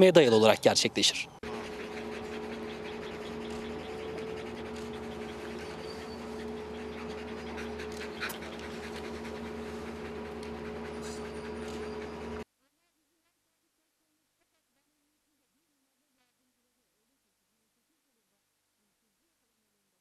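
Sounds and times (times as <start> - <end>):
dogs panting: 0.3 - 12.4
steady low hum: 0.4 - 12.4.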